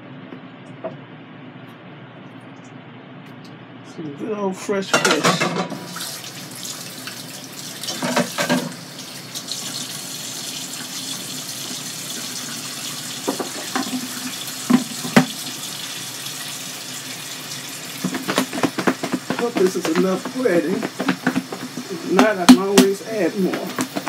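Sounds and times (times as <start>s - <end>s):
utensils and dishes clattering: 4.8s - 6.0s, 7.8s - 8.8s, 13.3s - 15.4s, 18.0s - 24.0s
tap running into sink: 7.8s - 10.0s, 12.1s - 15.9s, 17.5s - 24.0s.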